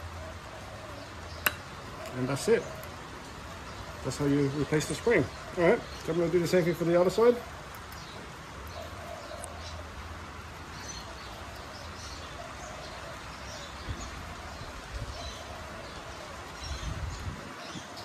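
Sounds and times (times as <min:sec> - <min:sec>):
faint birds chirping: 0:00.0 - 0:18.0.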